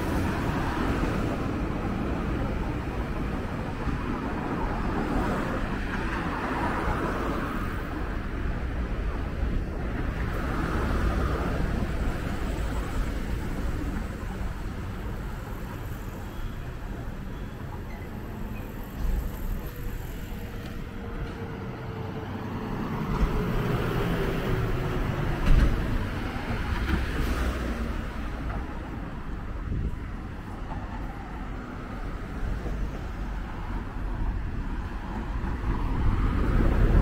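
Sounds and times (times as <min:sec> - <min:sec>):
passing cars rumbling: 0:18.2 - 0:37.0.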